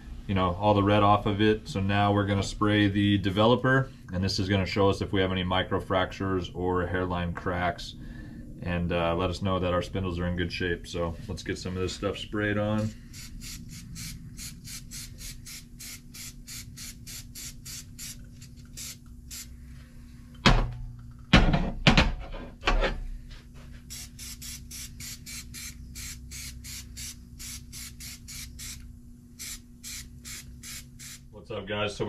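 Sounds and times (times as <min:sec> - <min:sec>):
knocks and thumps: 0:20.4 - 0:22.9.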